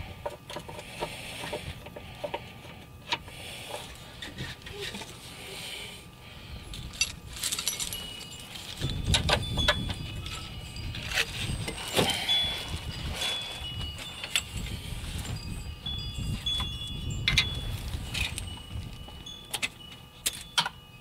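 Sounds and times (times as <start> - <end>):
high ringing notes: 5.2 - 21.0.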